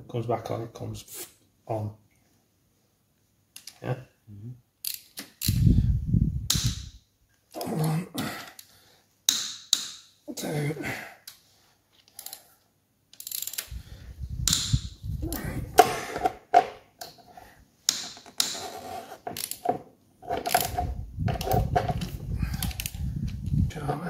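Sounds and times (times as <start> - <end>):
ratchet wrench clicking: 4.8 - 5.7, 13.2 - 13.8.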